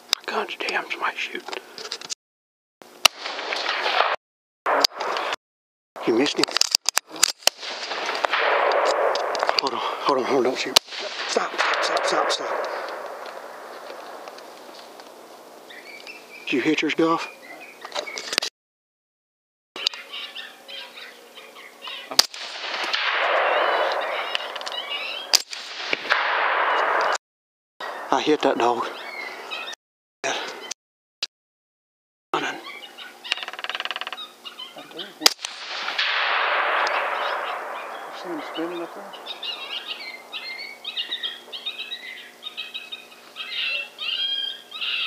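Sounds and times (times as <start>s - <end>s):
rifle shots: 3.0s - 5.4s, 7.0s - 14.7s, 22.1s - 27.2s, 35.2s - 40.8s
animal yipping and squealing: 32.4s - 35.2s, 36.9s - 45.0s.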